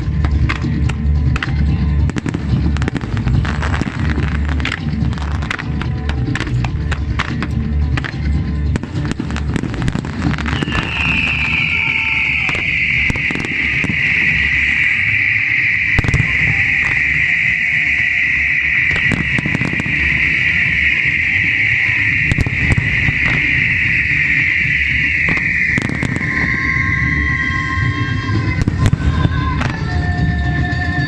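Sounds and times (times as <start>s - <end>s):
fireworks bangs and crackles: 0.0s - 31.0s
music with steady bass beat: 0.0s - 31.0s
loud high hiss: 10.6s - 29.2s.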